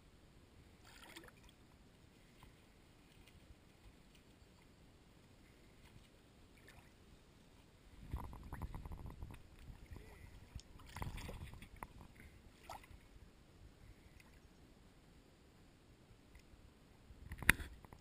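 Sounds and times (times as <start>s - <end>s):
river water sloshing and splashing: 0.8s - 1.6s, 6.5s - 7.1s, 9.4s - 13.2s
small clicks and gurgles: 0.8s - 13.1s, 17.2s - 18.0s.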